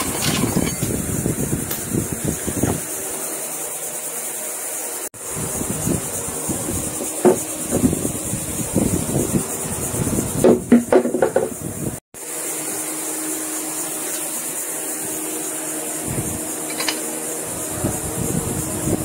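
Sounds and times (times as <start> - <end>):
steady hum with high hiss: 0.0 - 19.0
plastic bodywork knocking and clattering: 10.5 - 11.6.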